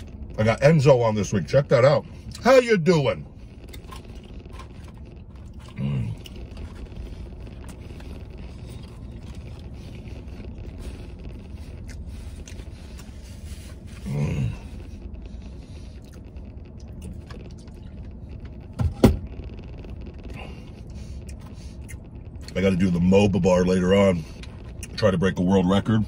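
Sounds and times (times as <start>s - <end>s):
low steady rumble: 0.0s - 26.0s
person grunting: 14.0s - 14.7s.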